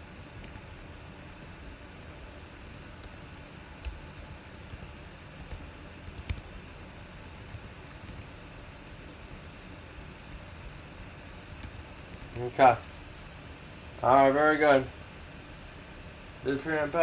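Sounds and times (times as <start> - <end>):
computer keyboard keystrokes: 0.4 - 0.7, 3.8 - 4.0, 4.6 - 6.5, 7.5 - 8.3, 11.6 - 12.5.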